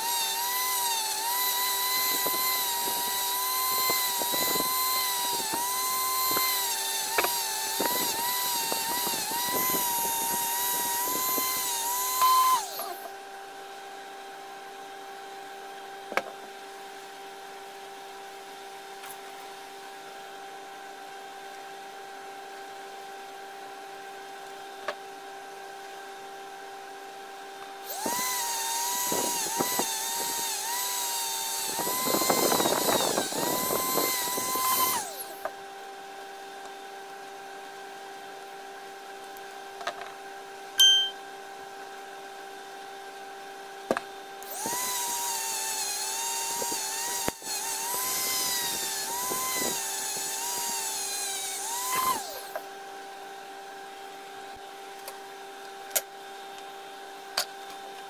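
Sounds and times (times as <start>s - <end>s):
electric drill running: 0.0s - 13.1s, 27.8s - 35.5s, 44.4s - 52.6s.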